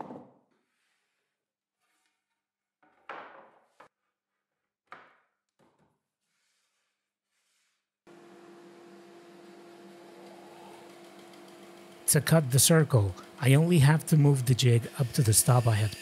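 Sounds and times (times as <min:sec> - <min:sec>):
wooden knocks and scrapes: 0:02.8 - 0:03.9
band saw humming: 0:08.1 - 0:16.0.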